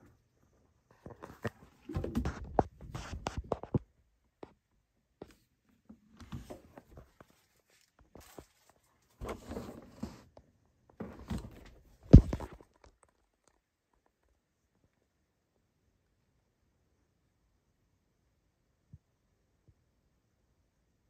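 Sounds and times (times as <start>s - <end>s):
rustling handling noise: 5.2s - 13.6s.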